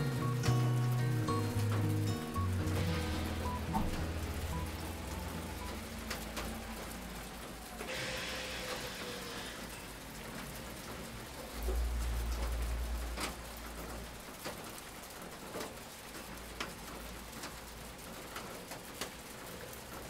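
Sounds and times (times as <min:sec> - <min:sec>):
rain pattering: 0:00.0 - 0:20.0
deep low rumble: 0:02.6 - 0:07.7.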